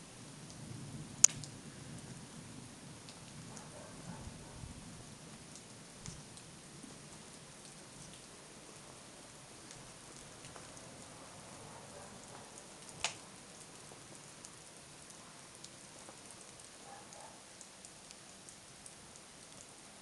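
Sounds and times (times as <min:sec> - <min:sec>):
snow pattering on branches: 0:12.3 - 0:14.5.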